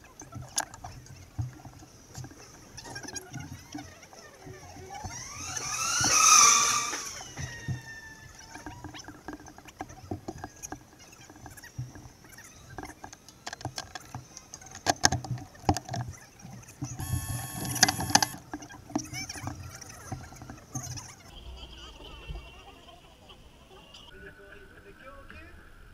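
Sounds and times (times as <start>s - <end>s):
brief steady whine: 17.0s - 18.4s.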